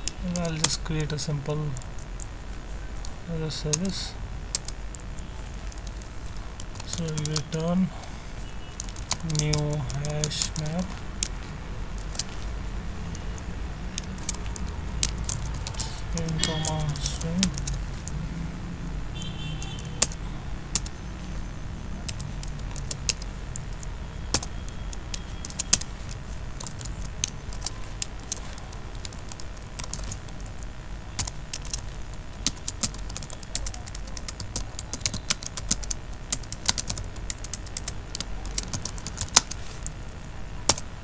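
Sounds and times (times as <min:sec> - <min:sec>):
steady low hum: 0:00.0 - 0:41.0
typing on computer keyboard: 0:04.6 - 0:07.5, 0:08.8 - 0:11.4, 0:13.1 - 0:18.2, 0:19.6 - 0:21.0, 0:22.0 - 0:30.3, 0:31.2 - 0:40.0.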